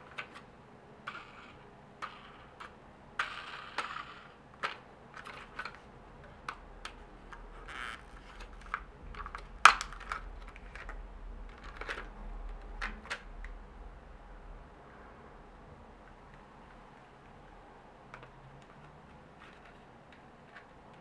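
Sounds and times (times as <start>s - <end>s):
plastic clicks and taps: 4.6s - 13.6s
sharp plastic snap: 8.7s - 10.9s.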